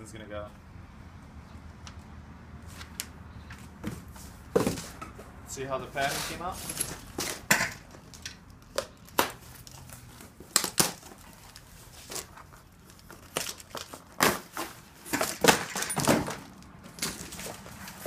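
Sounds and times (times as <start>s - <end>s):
cardboard scraping and knocking: 3.8s - 5.3s.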